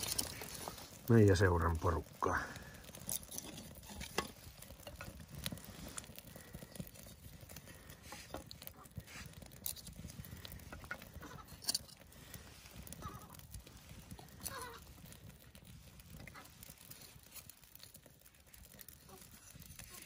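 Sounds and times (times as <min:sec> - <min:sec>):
wooden sticks knocking and clattering: 0:00.0 - 0:00.8, 0:02.8 - 0:06.2
fire crackling and popping: 0:00.0 - 0:20.0.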